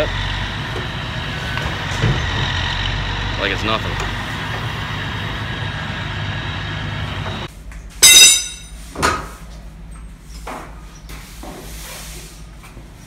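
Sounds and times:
truck engine and hydraulics running: 0.0s - 10.4s.

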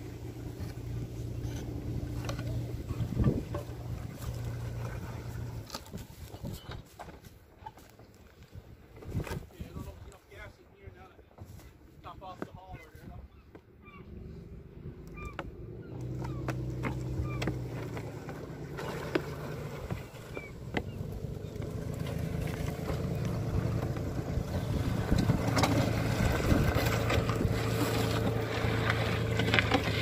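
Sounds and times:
motor running steadily: 0.0s - 5.8s, 14.2s - 30.0s
crates dragging over gravel: 0.0s - 10.4s, 15.7s - 30.0s.

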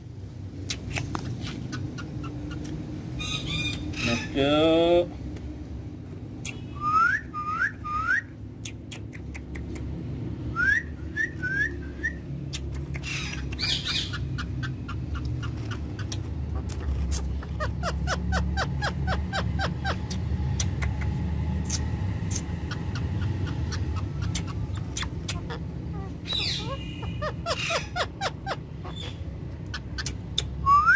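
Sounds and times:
steady low rumble: 0.0s - 30.7s
parakeet chirping: 0.6s - 4.4s, 10.8s - 30.9s.

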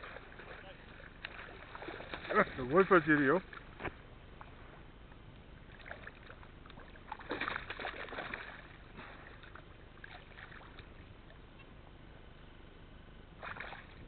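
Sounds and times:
fish splashing in shallow water: 0.0s - 3.8s, 5.6s - 11.6s, 13.4s - 14.0s.

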